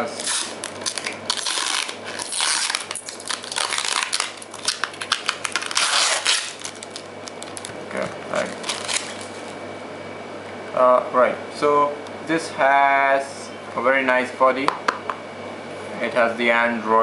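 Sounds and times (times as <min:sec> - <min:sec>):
plastic wrapping crinkling: 0:00.0 - 0:09.5.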